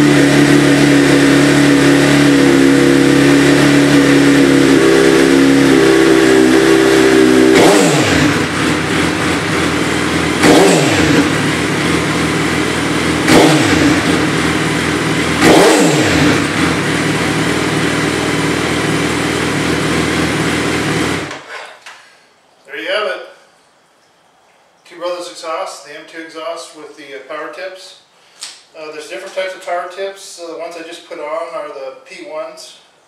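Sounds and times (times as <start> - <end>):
motorcycle engine revving: 0.0 - 21.5.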